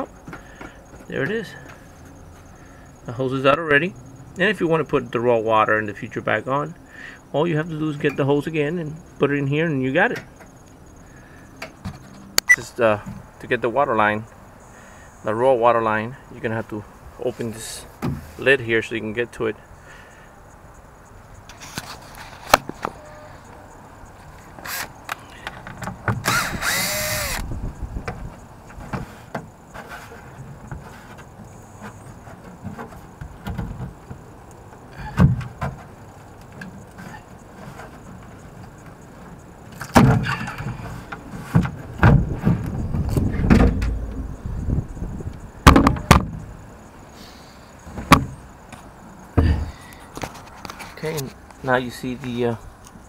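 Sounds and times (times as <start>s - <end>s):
fiberglass knocking and scraping: 28.0s - 44.4s.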